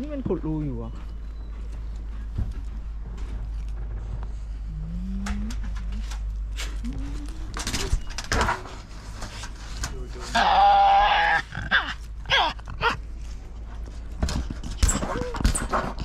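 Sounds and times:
animal call: 0:10.2 - 0:13.0.

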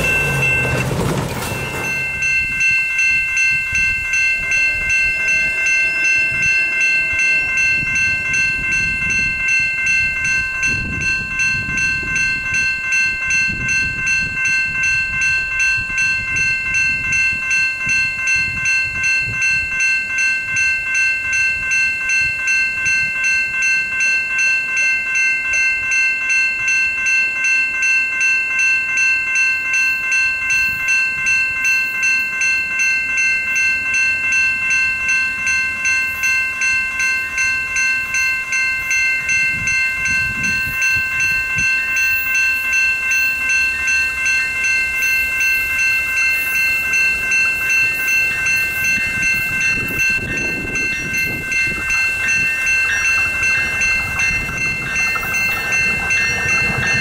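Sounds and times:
train rumble: 0:00.0 - 0:23.0, 0:37.3 - 0:57.0
railroad crossing bell ringing: 0:00.0 - 0:57.0.

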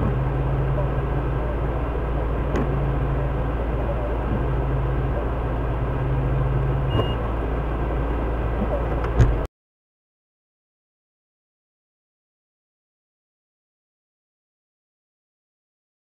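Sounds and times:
engine idling: 0:00.0 - 0:09.5
short high beep: 0:06.9 - 0:07.2.

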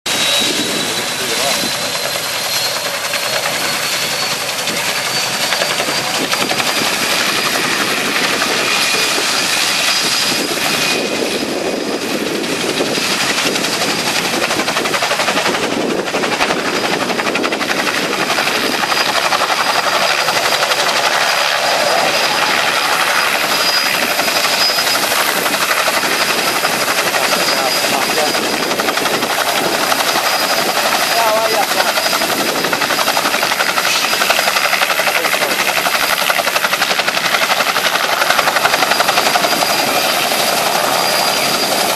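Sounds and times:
helicopter rotor chopping: 0:00.0 - 0:41.9
high engine whine: 0:00.1 - 0:41.9.

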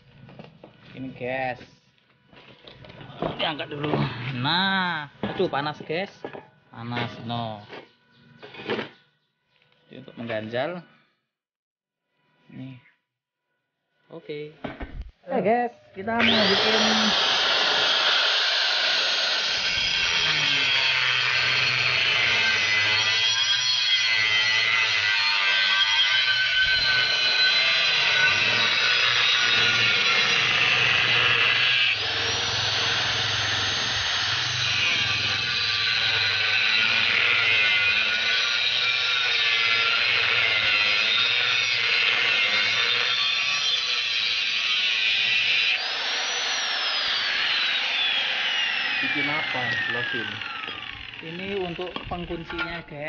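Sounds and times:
angle grinder cutting steel: 0:16.1 - 0:53.0.

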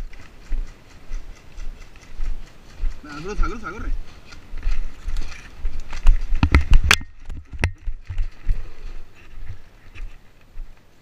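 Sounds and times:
sharp clacks: 0:00.0 - 0:07.9
brush rustling: 0:00.0 - 0:11.0
footsteps in dry scrub: 0:00.0 - 0:11.0.

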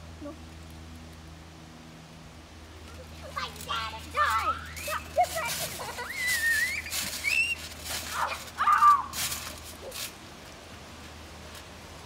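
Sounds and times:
scuffling on trampoline mat: 0:03.3 - 0:11.6
child squealing: 0:05.8 - 0:09.2.

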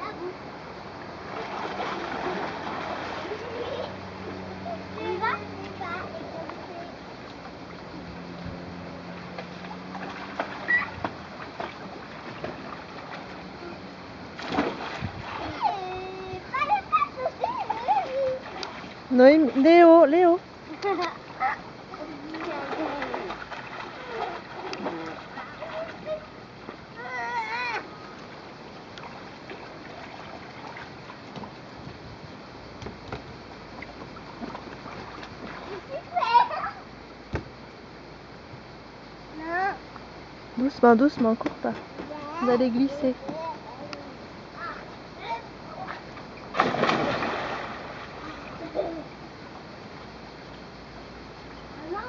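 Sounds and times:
pool water sloshing: 0:00.0 - 0:31.9, 0:32.7 - 0:36.9, 0:40.6 - 0:52.0
child jumping into water: 0:01.3 - 0:03.9, 0:09.4 - 0:13.8, 0:14.4 - 0:19.0, 0:20.8 - 0:26.2, 0:45.7 - 0:49.0.

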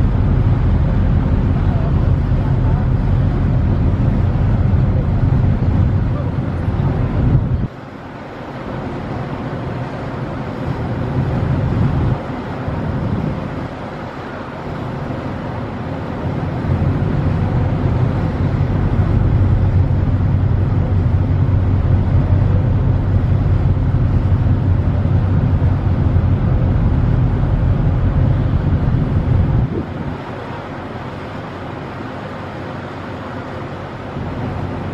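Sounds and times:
ferry engines rumbling: 0:00.0 - 0:34.9
water noise: 0:00.0 - 0:34.9
wind: 0:00.0 - 0:34.9.

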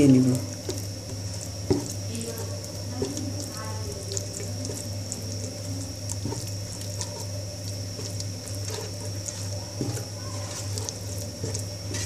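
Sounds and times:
spatula scraping paste in pan: 0:07.9 - 0:12.0.

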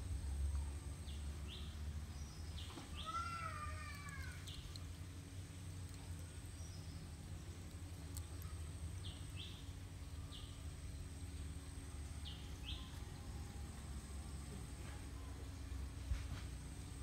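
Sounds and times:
bird chirping: 0:01.0 - 0:04.8, 0:06.0 - 0:07.2, 0:08.4 - 0:13.7.

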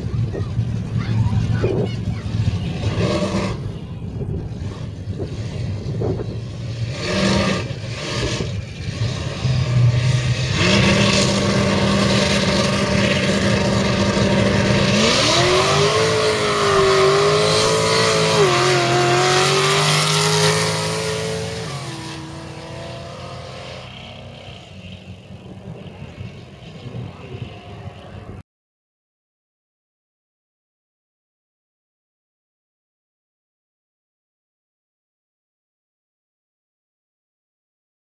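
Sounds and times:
racing car engines revving: 0:00.0 - 0:28.4.

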